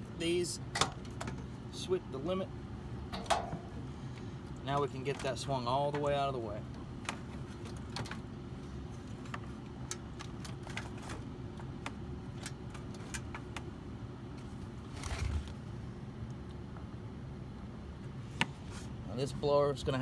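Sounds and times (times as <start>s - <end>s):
steady low hum: 0.0s - 20.0s
light clicks and metallic rattles: 3.1s - 8.3s
scraping rustle: 14.4s - 15.6s.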